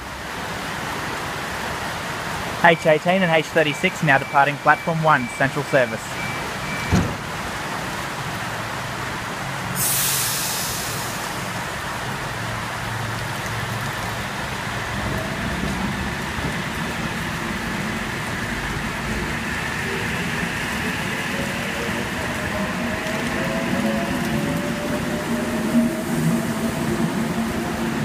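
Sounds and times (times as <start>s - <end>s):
rain hissing: 0.3s - 28.0s
burst of hissing air: 9.8s - 11.4s.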